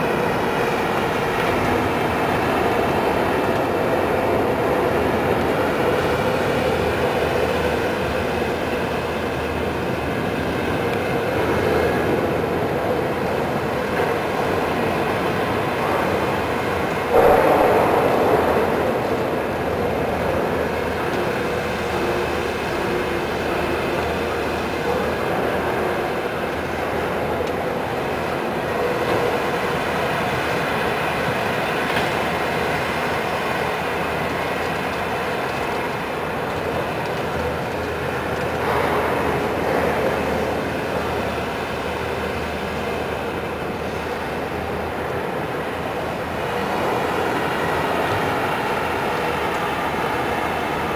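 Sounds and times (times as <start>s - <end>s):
sudden loud burst: 17.1s - 21.2s.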